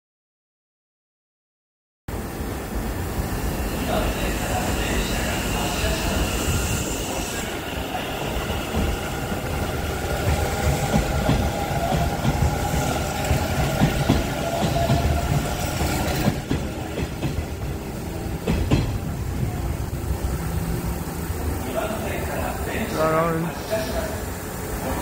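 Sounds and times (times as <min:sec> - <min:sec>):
electric train running past: 0:02.1 - 0:25.0
wheel clacks on rail joints: 0:10.2 - 0:19.8.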